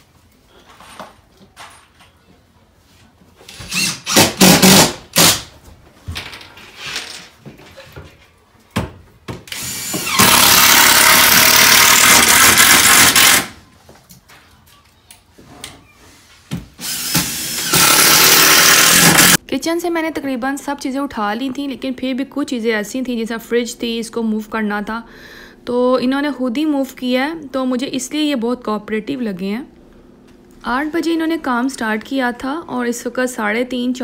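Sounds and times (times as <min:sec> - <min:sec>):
cordless drill driving screws: 0:03.6 - 0:05.4, 0:09.5 - 0:13.5, 0:16.8 - 0:19.4.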